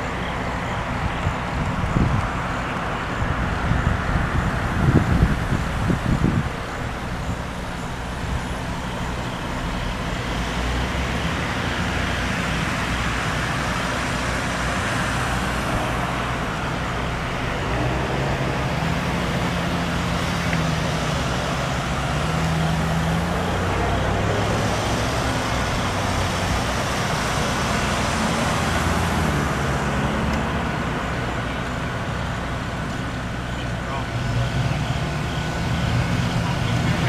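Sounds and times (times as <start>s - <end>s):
traffic: 0.0s - 37.0s
truck engine running: 0.0s - 37.0s.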